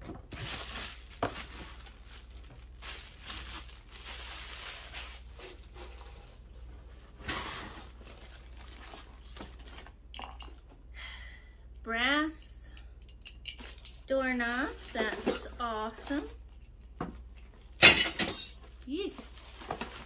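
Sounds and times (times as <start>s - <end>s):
plastic bag crinkling: 0.2s - 10.0s.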